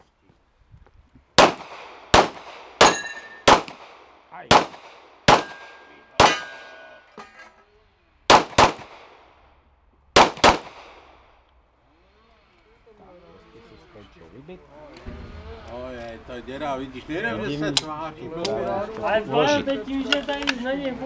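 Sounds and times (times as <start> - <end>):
handgun shots: 1.4 - 3.9, 4.5 - 6.9, 8.3 - 9.2, 10.2 - 11.1
steel target plate clanging: 2.8 - 3.5, 5.4 - 7.7.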